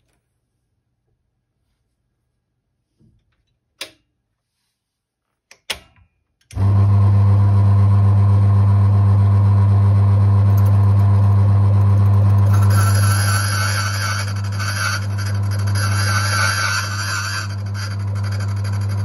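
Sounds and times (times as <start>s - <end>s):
electric motor humming: 6.6s - 19.0s.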